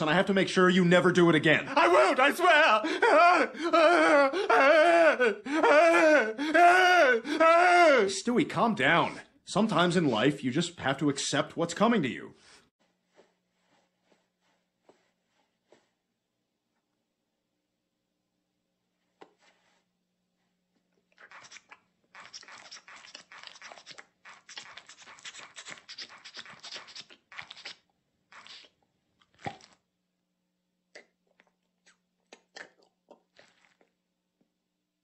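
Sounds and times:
wet sucking and slurping: 0:21.0 - 0:29.9, 0:30.9 - 0:34.0
lip smacks: 0:21.1 - 0:29.9, 0:30.9 - 0:34.0.

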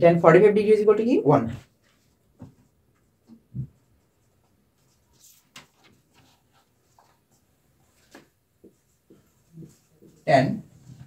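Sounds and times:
marker pen scratching on whiteboard: 0:08.6 - 0:11.0.

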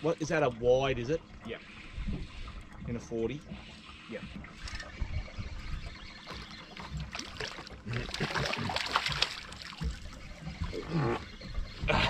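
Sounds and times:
fish splashing in water: 0:05.8 - 0:11.4.

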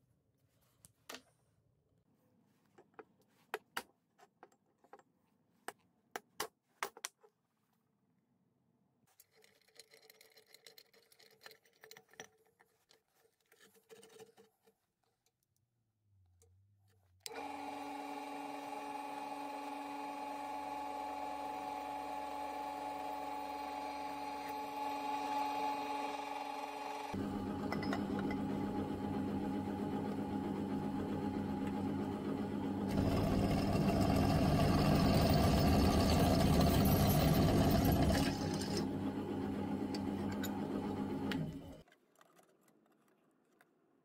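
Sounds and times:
drill press whining into metal: 0:17.3 - 0:41.8.

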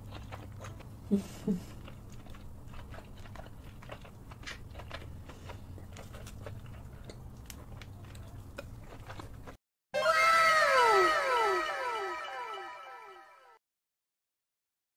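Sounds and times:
wet mouth eating sounds: 0:00.0 - 0:09.6.

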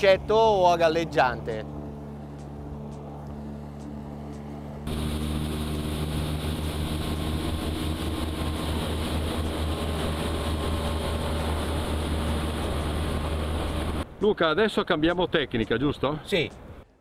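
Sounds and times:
motorboat engine droning: 0:00.0 - 0:14.2.

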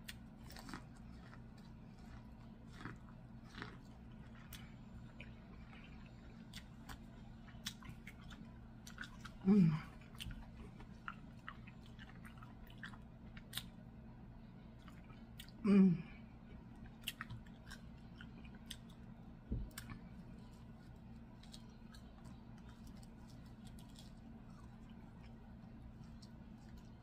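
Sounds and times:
chewing: 0:00.0 - 0:13.8, 0:14.7 - 0:15.6, 0:16.5 - 0:27.0
hummed vocal sound: 0:09.4 - 0:10.0, 0:15.6 - 0:16.2
soft low thump: 0:19.5 - 0:19.8.

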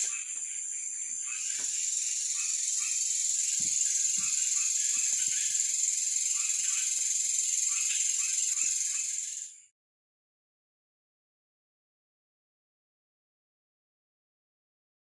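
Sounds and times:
high-pitched insect shrill: 0:00.0 - 0:09.7
insect chirps: 0:00.0 - 0:09.7.

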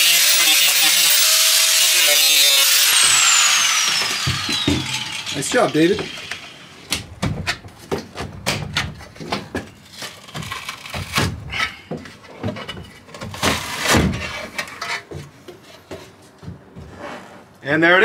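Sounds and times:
creaking metal scrapes: 0:16.9 - 0:17.5.

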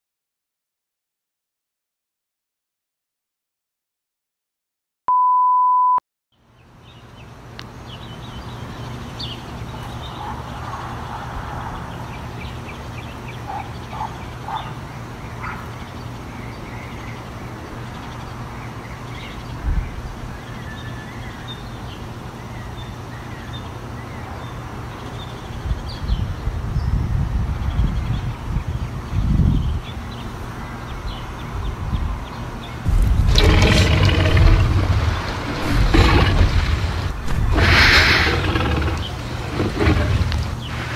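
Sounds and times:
high test tone beep: 0:05.1 - 0:06.0
wind rumble on microphone: 0:19.6 - 0:20.3, 0:25.5 - 0:30.0, 0:31.1 - 0:32.3, 0:32.9 - 0:40.9
birds chirping: 0:29.6 - 0:40.9
low outdoor hum: 0:32.5 - 0:40.9.

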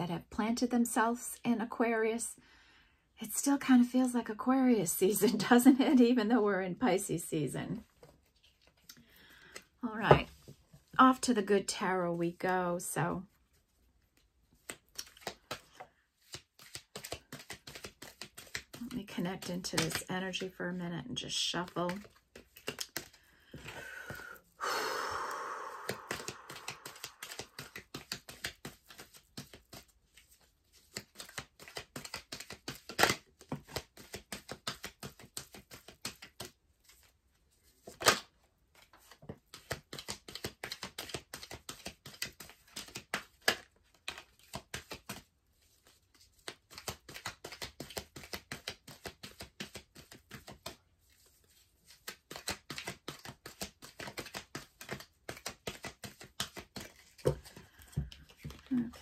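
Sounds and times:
cards being shuffled: 0:07.8 - 0:11.4, 0:13.6 - 0:20.6, 0:21.2 - 0:24.2, 0:25.8 - 0:59.0
rustle of cards: 0:13.5 - 0:20.6, 0:21.6 - 0:23.7, 0:25.8 - 0:59.0
card snaps: 0:25.8 - 0:28.4.

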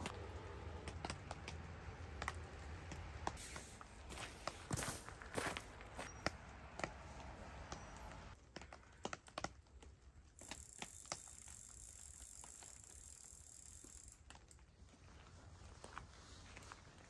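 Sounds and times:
rain drips from trees: 0:00.0 - 0:04.6, 0:06.0 - 0:14.9.

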